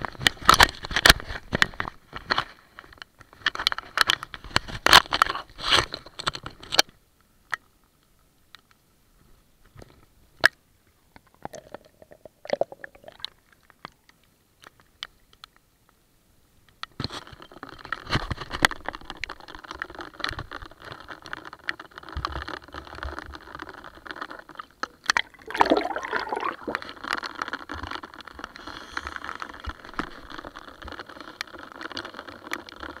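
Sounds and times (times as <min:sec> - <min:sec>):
rain pattering on a kayak: 0:16.7 - 0:33.0
lake water washing: 0:25.2 - 0:26.9
water splashing: 0:25.2 - 0:26.9.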